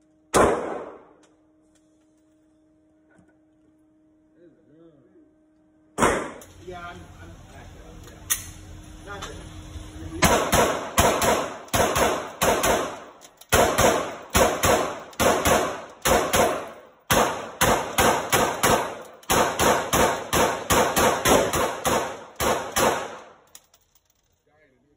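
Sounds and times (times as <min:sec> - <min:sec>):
pistol shots echoing indoors: 0:00.2 - 0:01.4, 0:06.0 - 0:06.6, 0:10.2 - 0:23.6.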